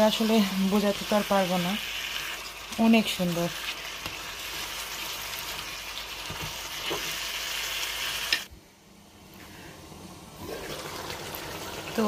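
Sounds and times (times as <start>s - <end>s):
curry sizzling in a pan: 0.0s - 8.5s.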